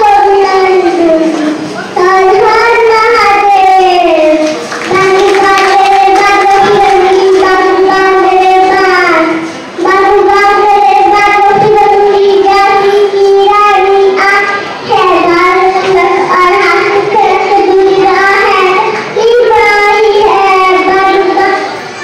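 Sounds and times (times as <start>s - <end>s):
girl singing into a microphone: 0.0s - 22.0s.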